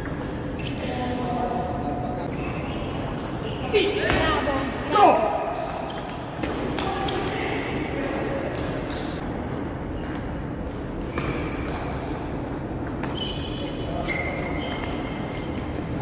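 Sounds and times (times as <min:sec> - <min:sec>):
shoes squeaking on floor: 0:02.3 - 0:03.8, 0:05.8 - 0:06.4, 0:13.0 - 0:15.8.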